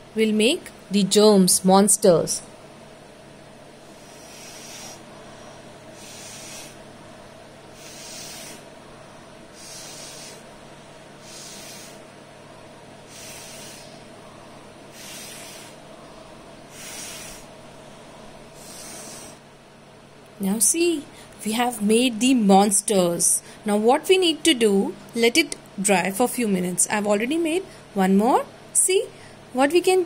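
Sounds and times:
breath puffs through a straw: 3.9s - 5.1s, 5.9s - 6.8s, 7.7s - 8.7s, 9.6s - 10.5s, 11.2s - 12.1s, 13.1s - 14.1s, 14.9s - 15.8s, 16.7s - 17.5s, 18.6s - 19.4s.

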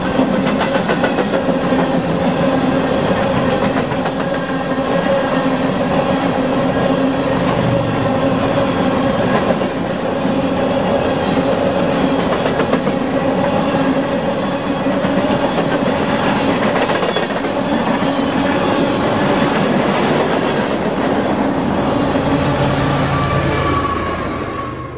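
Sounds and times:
freight train wheels clattering: 0.0s - 5.1s.

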